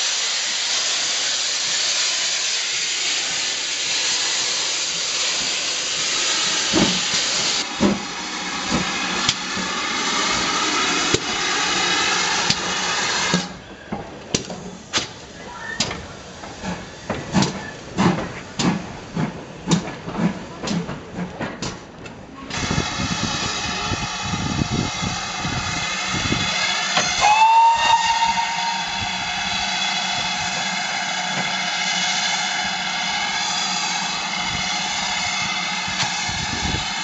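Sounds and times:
steam hissing: 0:00.0 - 0:13.6, 0:22.5 - 0:37.0
steam locomotive beats: 0:00.0 - 0:37.0.

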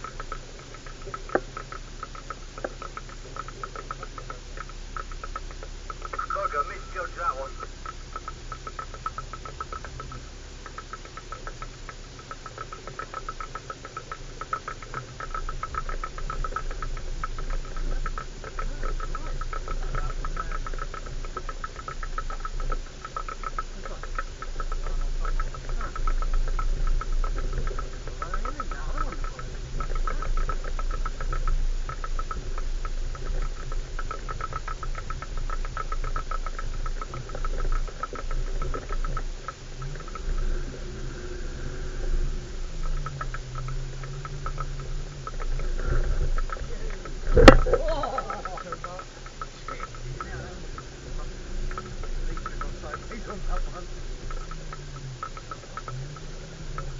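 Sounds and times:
engine and road rumble: 0:00.0 - 0:56.9
stones rattling under tyres: 0:00.0 - 0:56.9
loose object rattling: 0:42.6 - 0:56.9.

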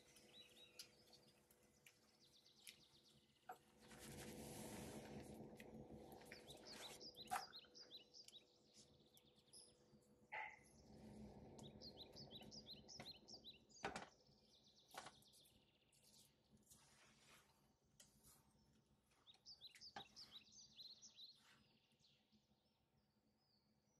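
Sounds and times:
faint bird chirps: 0:06.2 - 0:16.4, 0:19.1 - 0:22.3.

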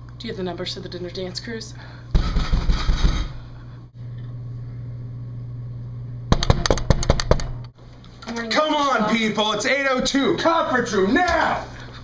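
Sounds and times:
steady low hum: 0:00.0 - 0:12.0
sharp clicks and knocks: 0:06.3 - 0:07.7.

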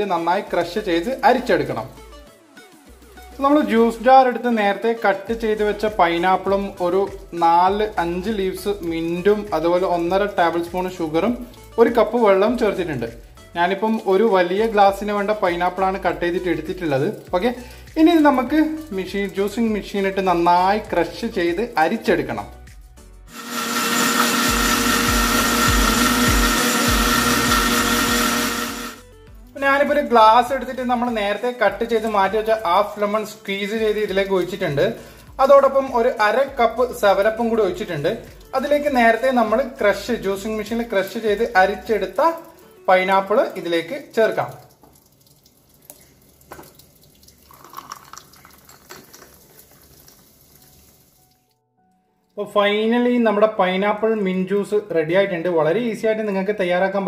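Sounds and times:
liquid trickling and splashing: 0:05.4 - 0:22.6, 0:29.0 - 0:51.6
mixer grinder motor whine: 0:23.3 - 0:29.0.

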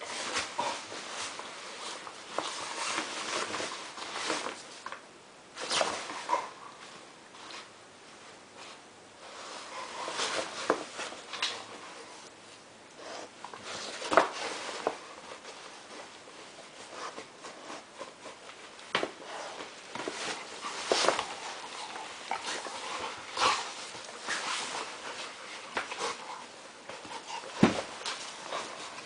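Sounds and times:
dogs scuffling: 0:00.0 - 0:07.7, 0:08.6 - 0:12.3, 0:13.1 - 0:29.0
paws on floor: 0:08.6 - 0:12.3, 0:13.0 - 0:29.0.

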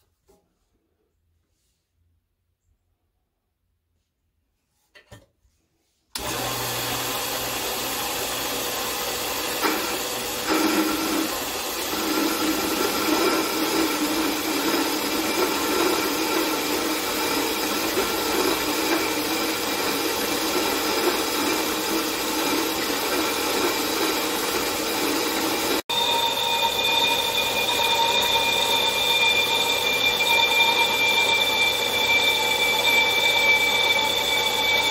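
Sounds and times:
bandsaw running with whine: 0:06.2 - 0:34.9
bandsaw blade cutting aluminum: 0:09.5 - 0:34.9.

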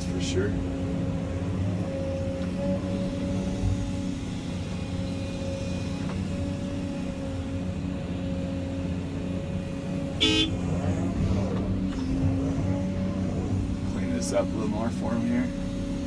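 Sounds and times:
excavator engine and hydraulics: 0:00.0 - 0:16.0
short horn toot: 0:10.2 - 0:10.6.

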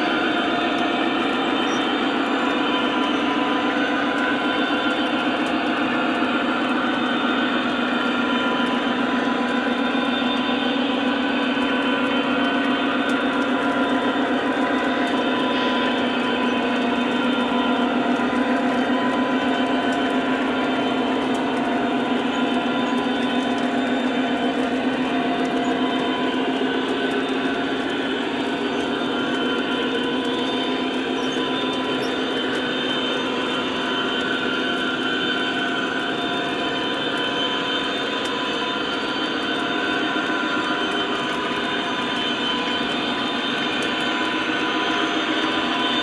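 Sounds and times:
model train wheels on track: 0:00.0 - 0:46.0.

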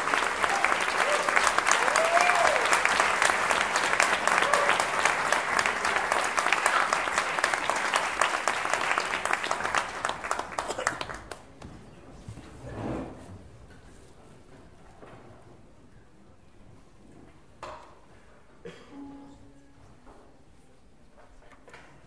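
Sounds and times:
audience applauding: 0:00.0 - 0:11.6.

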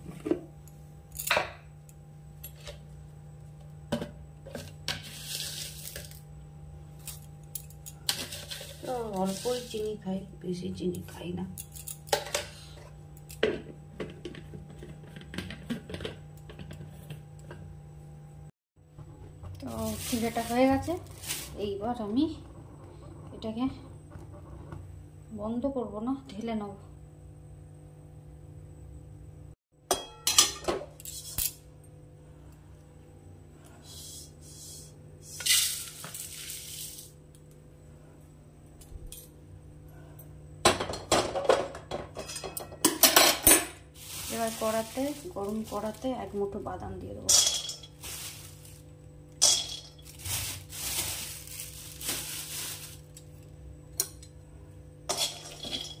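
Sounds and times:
steady low hum: 0:00.0 - 0:56.0
rice flakes poured into steel bowl: 0:35.4 - 0:37.1.

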